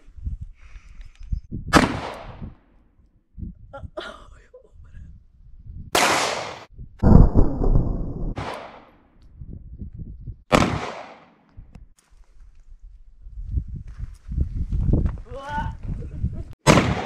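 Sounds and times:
pistol shots: 0:01.7 - 0:02.4, 0:06.0 - 0:06.7, 0:08.3 - 0:09.0, 0:10.5 - 0:11.4, 0:16.6 - 0:17.0.

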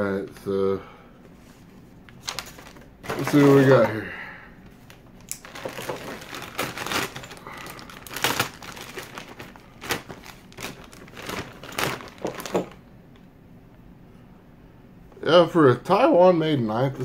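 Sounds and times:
plastic bag crinkling: 0:02.1 - 0:04.0, 0:04.8 - 0:12.8.

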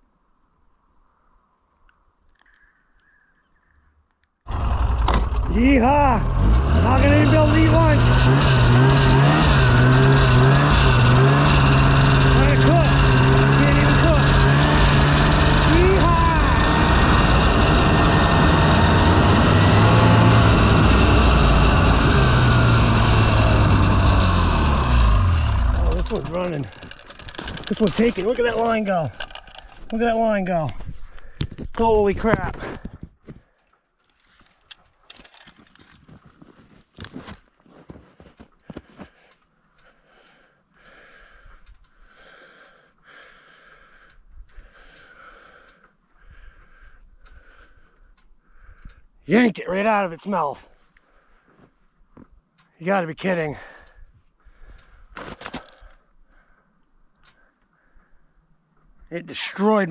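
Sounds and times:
snowmobile engine running: 0:04.5 - 0:30.6
person breathing: 0:31.0 - 0:31.6, 0:38.0 - 0:49.1, 0:50.7 - 0:51.8, 0:53.6 - 0:58.5.

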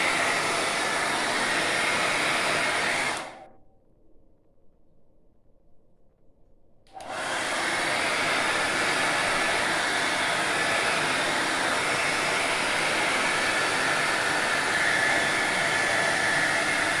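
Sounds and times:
hair dryer running: 0:00.0 - 0:03.5, 0:06.9 - 0:17.0.

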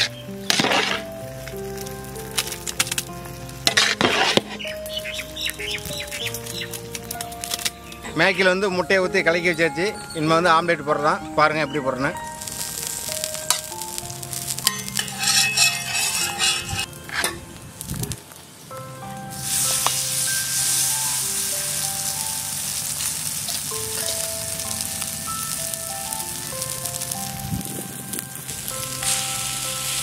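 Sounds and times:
mixture sizzling in a pan: 0:00.0 - 0:07.6, 0:12.4 - 0:30.0
stirring with clinks: 0:14.6 - 0:17.4.

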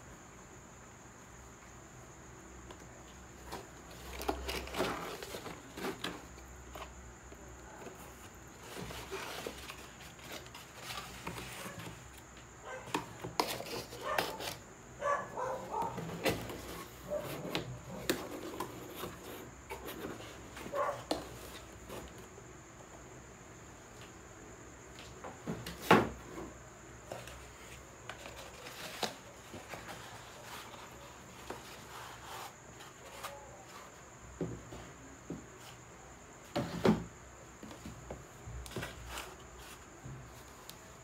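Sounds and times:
cardboard scraping and rustling: 0:03.4 - 0:07.0, 0:07.7 - 0:14.6, 0:15.4 - 0:22.2, 0:25.5 - 0:35.8, 0:36.5 - 0:40.6.

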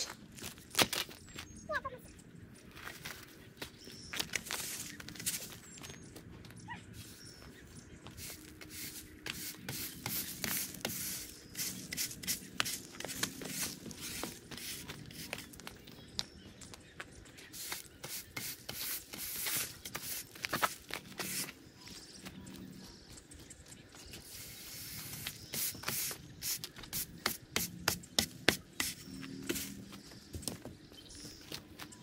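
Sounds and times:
push broom scraping pavers: 0:04.2 - 0:05.7, 0:08.0 - 0:15.9, 0:17.5 - 0:22.2, 0:24.1 - 0:30.3.

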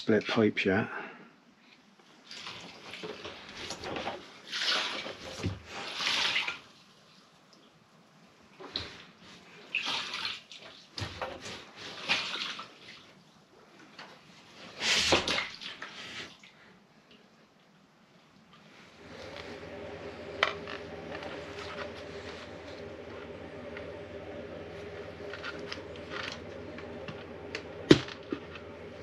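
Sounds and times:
fuel sloshing in plastic tank: 0:02.2 - 0:06.7, 0:08.6 - 0:13.2.

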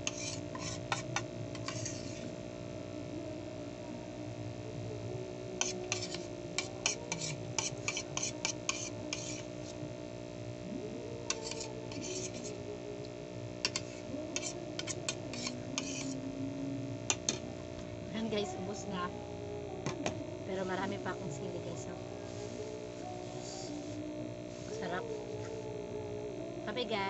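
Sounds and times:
metal spoon scraping ceramic plate: 0:00.0 - 0:02.3, 0:05.6 - 0:09.5, 0:11.3 - 0:12.6, 0:13.6 - 0:16.2, 0:17.1 - 0:17.4.

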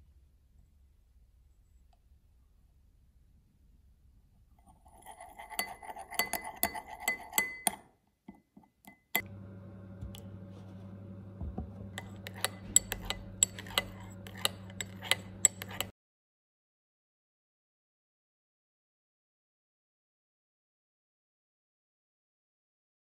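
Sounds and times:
metal spoon clinking glass bowl: 0:04.8 - 0:07.9, 0:08.8 - 0:09.3, 0:11.8 - 0:15.9
steady low hum: 0:09.2 - 0:15.9.

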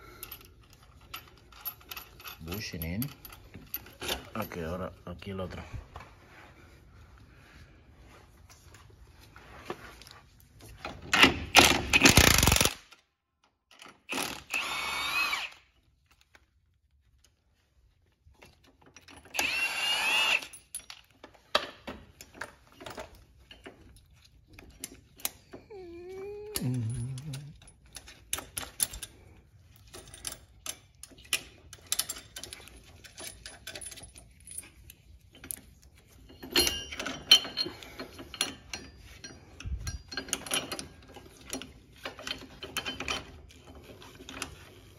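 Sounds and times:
power tool whining: 0:14.1 - 0:15.6, 0:19.3 - 0:20.5
metal hardware clinking: 0:26.6 - 0:44.6.

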